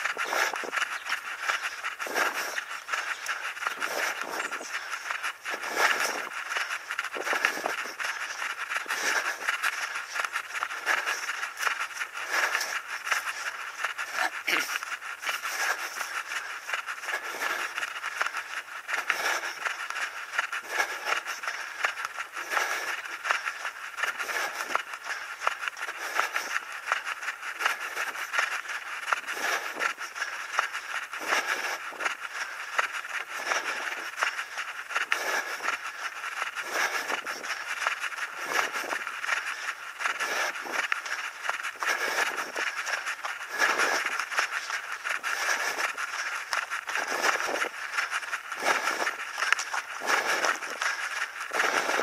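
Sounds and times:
running footsteps on pavement: 0:00.0 - 0:52.0.

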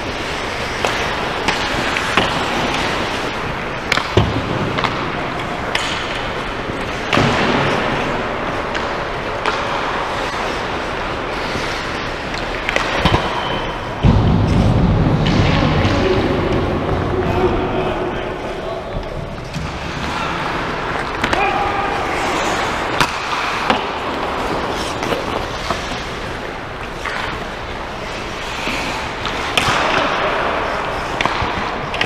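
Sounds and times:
skate blades scraping ice: 0:00.0 - 0:04.2, 0:08.0 - 0:13.9, 0:19.5 - 0:32.0
hockey sticks clacking: 0:00.0 - 0:32.0
loud deep burst: 0:14.0 - 0:18.6.

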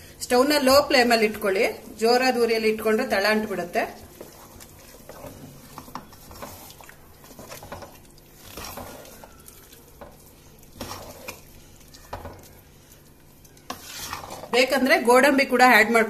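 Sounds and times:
wooden spatula stirring thick mash: 0:00.5 - 0:15.3
spatula scraping metal pot: 0:02.7 - 0:15.2.

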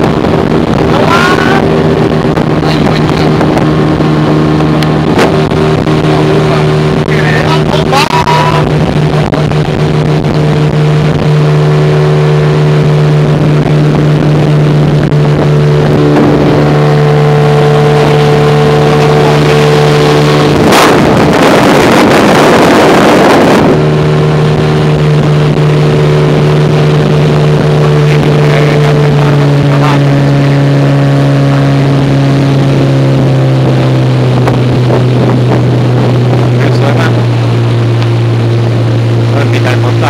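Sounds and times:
boat motor running: 0:00.0 - 0:40.0
loud rushing noise: 0:00.0 - 0:40.0.

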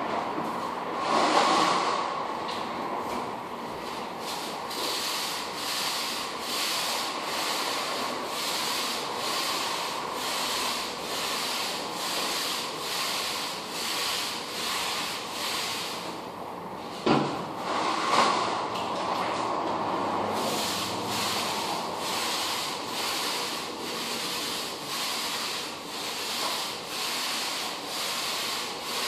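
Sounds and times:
rubbing on hardwood floor: 0:03.8 - 0:16.1, 0:20.3 - 0:29.0.

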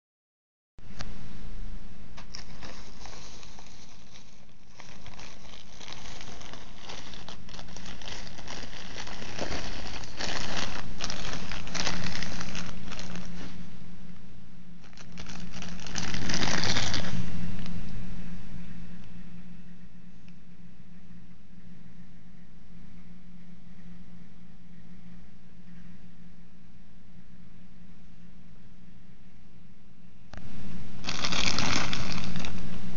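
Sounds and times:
padded mailer crinkling: 0:02.2 - 0:13.6, 0:14.8 - 0:17.7, 0:31.0 - 0:32.6
plastic bag rustling: 0:02.2 - 0:13.8, 0:14.8 - 0:17.8, 0:31.0 - 0:32.8.

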